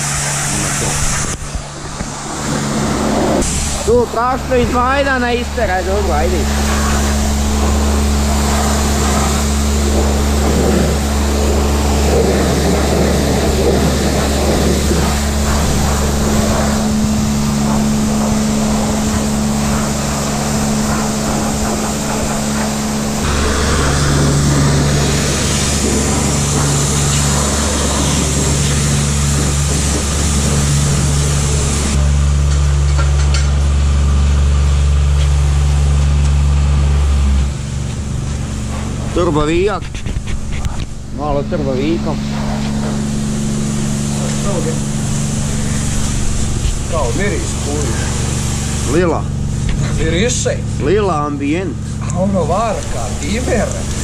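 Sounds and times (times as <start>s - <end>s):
rushing noise: 0.0s - 32.1s, 40.9s - 49.6s
car engine drone: 0.0s - 54.0s.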